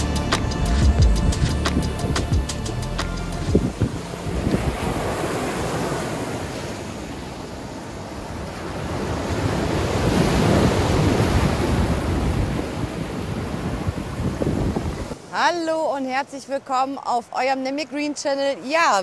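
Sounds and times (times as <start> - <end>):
wind buffeting microphone: 0.5 - 15.2.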